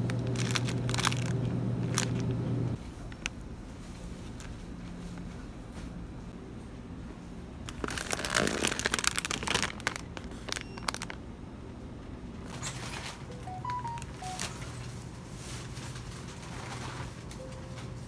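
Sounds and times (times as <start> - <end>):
plastic snack bag crinkling: 0.0 - 2.3, 7.7 - 11.2.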